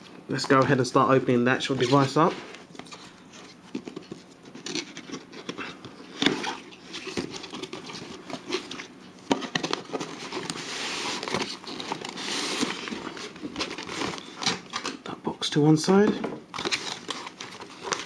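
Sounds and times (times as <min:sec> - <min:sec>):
cardboard scraping rustle: 0:01.6 - 0:14.7.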